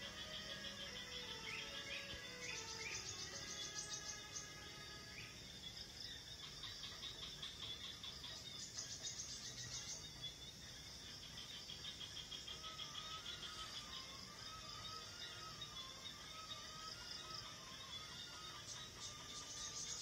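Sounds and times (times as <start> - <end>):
high rapid chirping trills: 0.0 - 4.6, 11.9 - 20.0.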